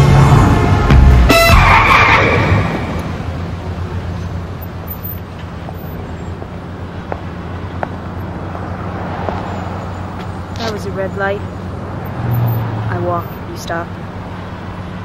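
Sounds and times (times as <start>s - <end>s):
car engine idling: 0.0s - 15.0s
street traffic: 0.0s - 15.0s.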